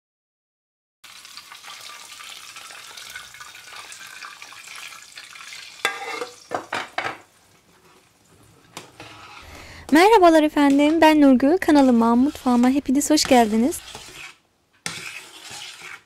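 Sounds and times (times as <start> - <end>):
hot fat sizzling: 1.0 - 6.8
metal clanking against pot: 5.8 - 7.2.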